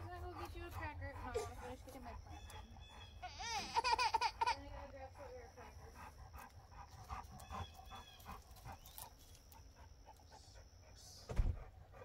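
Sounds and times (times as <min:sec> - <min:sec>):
dog panting: 0:00.0 - 0:12.0
loud low thump: 0:11.3 - 0:11.7.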